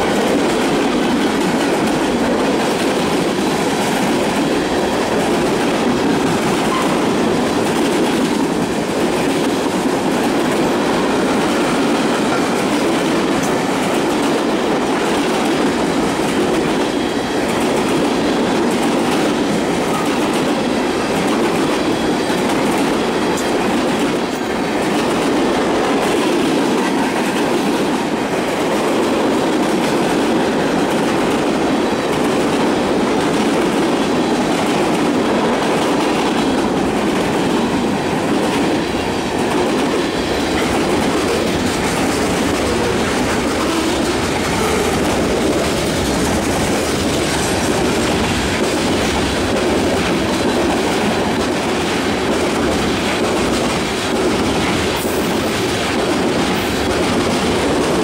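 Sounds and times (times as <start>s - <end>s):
freight train wheels rumbling on rails: 0.0s - 58.0s.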